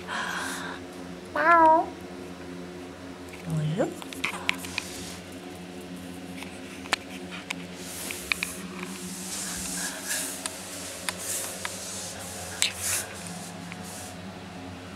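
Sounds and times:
steady low hum: 0.0 - 14.9
puppies rustling and scratching: 3.3 - 14.2.

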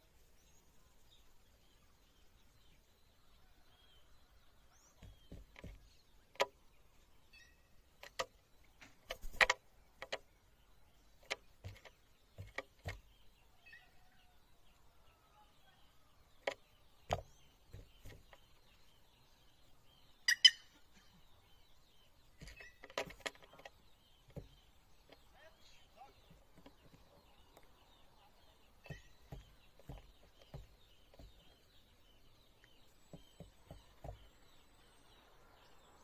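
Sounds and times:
faint bird chirps: 0.0 - 36.0
beaks tapping on fruit: 4.8 - 6.7, 8.0 - 10.3, 11.0 - 13.2, 16.4 - 18.7, 22.4 - 25.4, 28.8 - 34.6.

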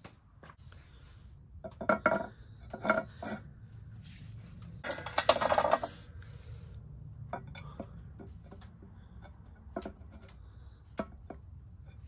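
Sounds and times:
clay pot clattering on stone: 1.6 - 3.4, 4.8 - 5.9.

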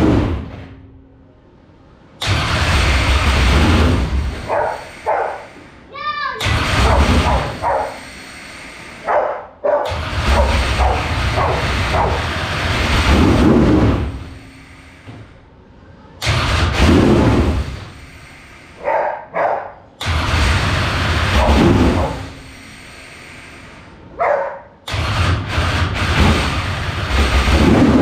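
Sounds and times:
race engine revving: 9.9 - 14.3.

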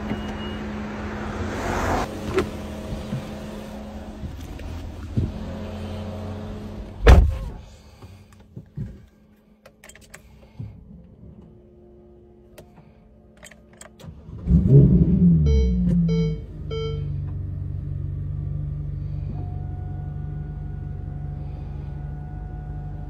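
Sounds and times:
car engine starting and rumbling: 0.0 - 23.0
car door shutting: 2.1 - 3.6, 7.0 - 7.7.

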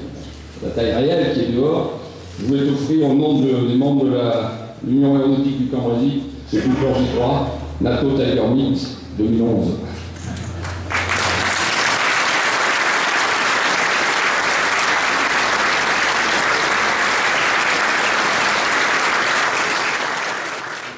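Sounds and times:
audience applauding: 10.6 - 20.9.

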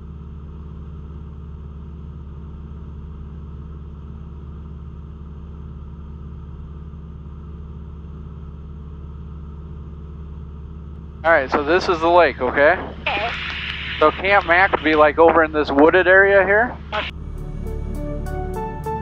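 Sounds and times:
airplane engine and propeller droning: 9.8 - 19.0.

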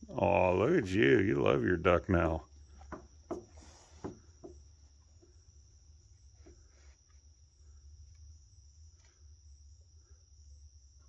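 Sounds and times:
crickets trilling: 0.0 - 11.0
faint low hum: 0.0 - 11.0.

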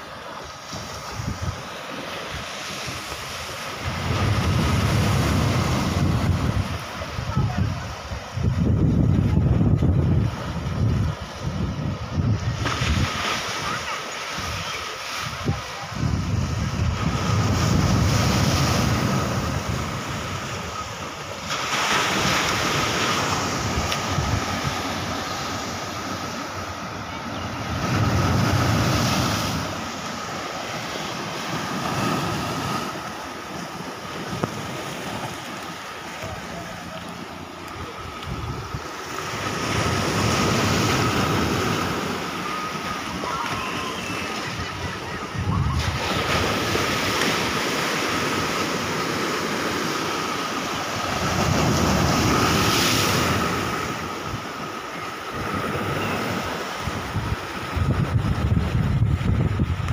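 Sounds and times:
waves breaking on rocks: 0.0 - 59.9
wind on microphone: 0.7 - 33.1, 37.7 - 48.5, 55.3 - 59.9.

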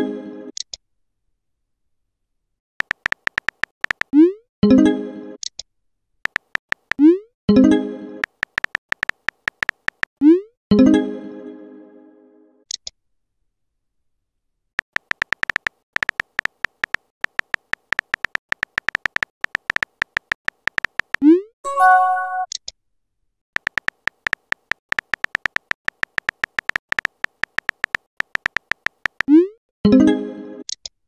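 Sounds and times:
keyboard typing clicks: 2.8 - 4.2, 6.3 - 7.1, 8.2 - 10.2, 14.8 - 21.2, 23.6 - 29.4
message chime: 21.7 - 22.5.

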